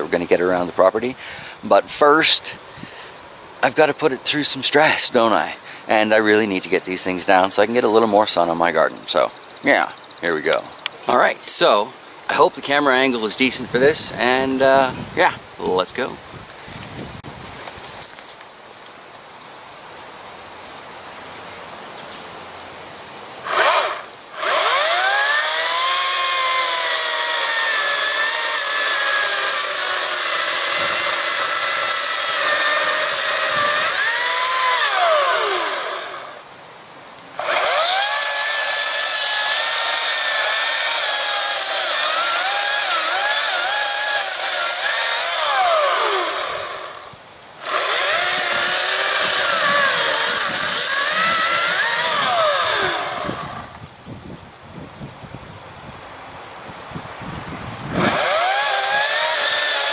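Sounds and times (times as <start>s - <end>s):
electric chainsaw cutting wood: 23.4s - 36.5s, 37.4s - 53.8s, 57.8s - 59.9s.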